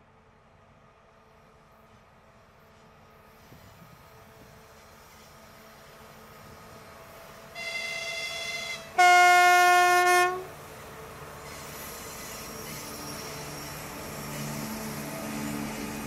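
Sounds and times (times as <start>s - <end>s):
diesel locomotive engine passing: 0.0s - 16.0s
locomotive horn blasts: 7.6s - 10.6s.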